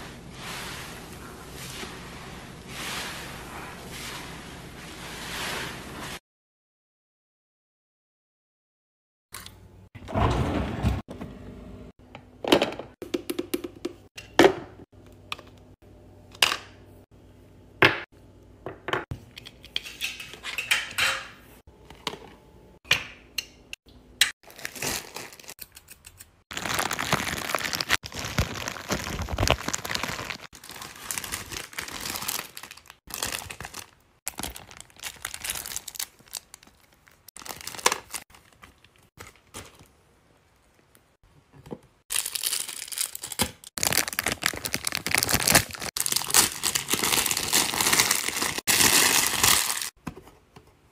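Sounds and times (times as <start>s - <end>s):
plastic bag crinkling and tearing: 24.4s - 25.6s, 26.5s - 39.8s, 42.1s - 50.0s
paper bag crinkling: 24.5s - 25.6s, 26.5s - 39.8s, 42.1s - 49.9s.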